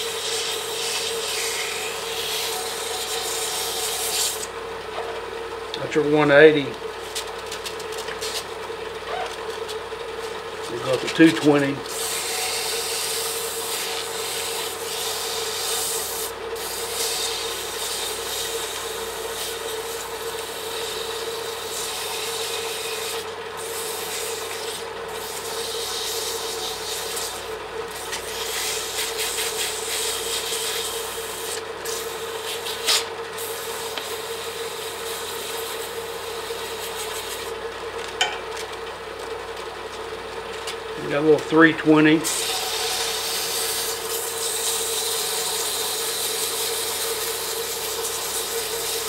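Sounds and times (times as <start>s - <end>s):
sandpaper hissing on spinning wood: 0.0s - 4.5s, 10.8s - 37.5s, 41.1s - 49.0s
lathe humming: 0.0s - 49.0s.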